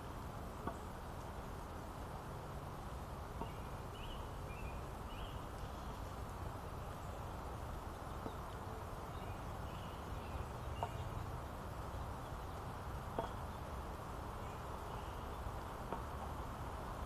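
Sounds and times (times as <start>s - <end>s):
high chirps of birds or insects: 3.4s - 16.1s.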